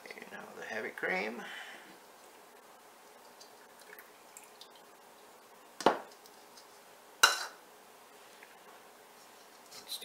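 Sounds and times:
cream pouring and dripping: 3.0s - 6.7s.

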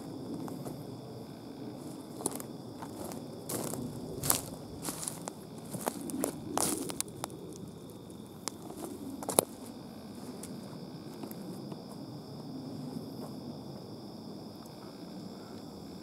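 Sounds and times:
faint high hum: 0.0s - 16.0s
footsteps on forest floor: 2.2s - 7.1s
dry twigs snapping: 4.3s - 7.7s.

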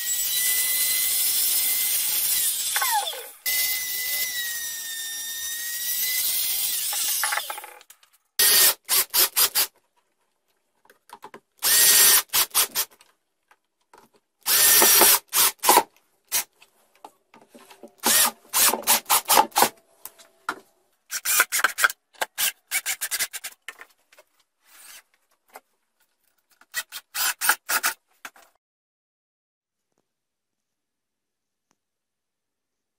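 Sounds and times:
cordless drill driving screws: 8.4s - 9.7s, 11.6s - 12.9s, 14.4s - 16.5s, 18.0s - 19.7s, 26.7s - 28.0s.

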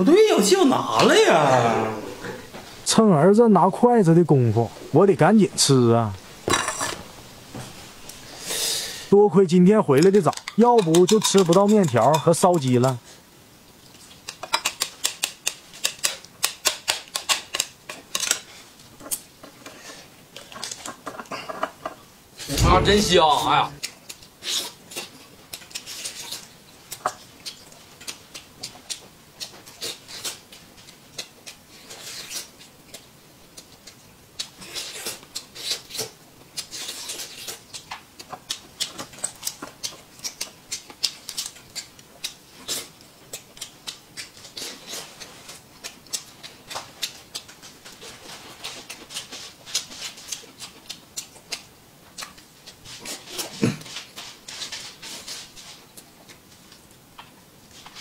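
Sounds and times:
man chewing and lip-smacking: 13.8s - 21.3s, 23.8s - 58.0s.

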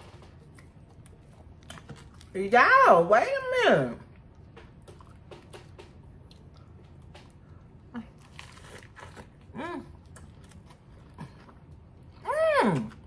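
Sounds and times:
lettuce crunching while eating: 4.1s - 13.0s.

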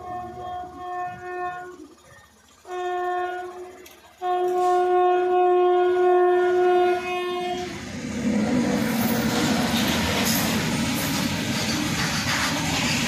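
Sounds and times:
locomotive air horn blasts: 0.0s - 7.8s.

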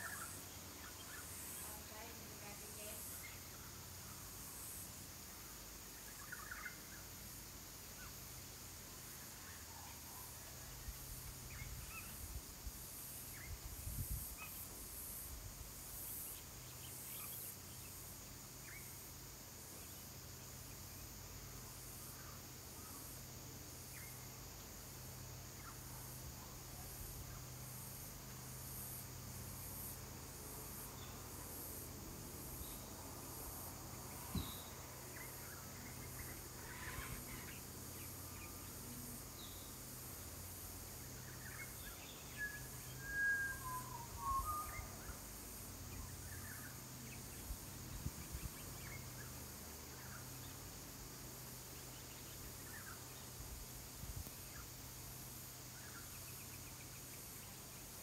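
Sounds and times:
faint bird chirps: 0.0s - 4.2s, 34.2s - 38.7s, 41.2s - 45.3s
insects chirring: 0.0s - 58.0s.

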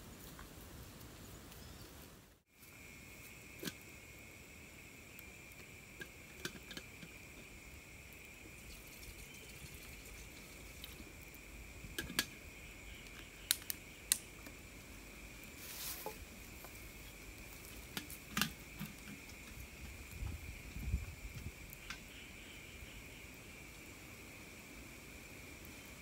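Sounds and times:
insects chirring: 0.0s - 26.0s
clicks and knocks from campfire: 2.5s - 22.2s.

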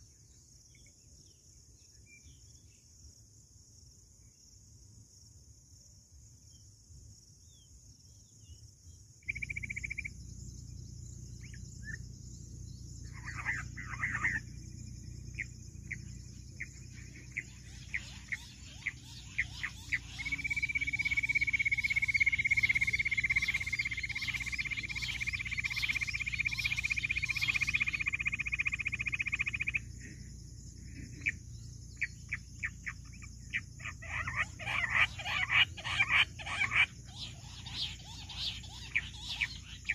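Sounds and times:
high insect hiss: 0.0s - 39.9s
quail chirping and trilling: 9.3s - 10.2s, 13.0s - 14.6s, 15.2s - 29.9s, 30.9s - 39.9s.

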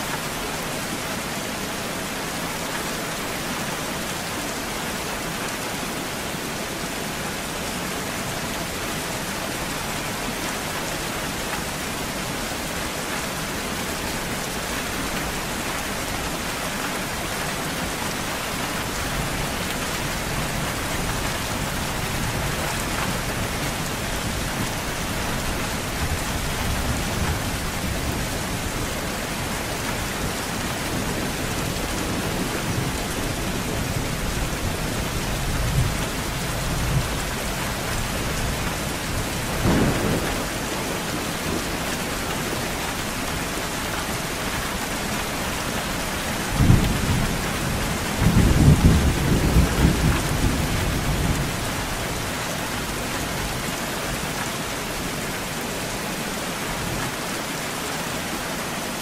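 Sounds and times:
steady rain: 0.0s - 59.0s
rolling thunder: 46.6s - 51.6s.

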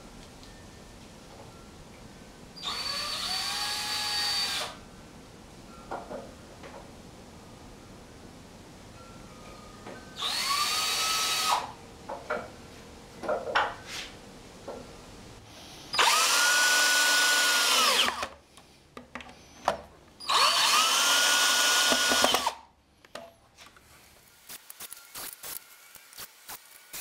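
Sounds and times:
cordless drill driving screws: 2.6s - 4.8s, 10.2s - 11.7s, 16.0s - 18.3s, 20.2s - 22.6s.

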